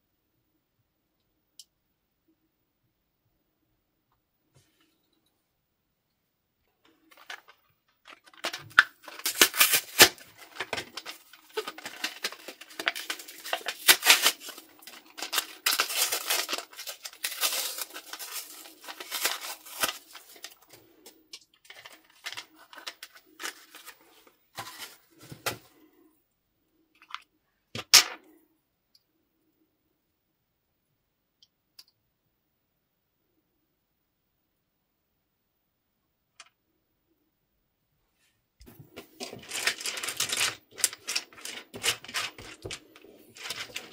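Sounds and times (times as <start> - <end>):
wrapper crinkling and tearing: 6.9 - 25.6, 38.6 - 43.9.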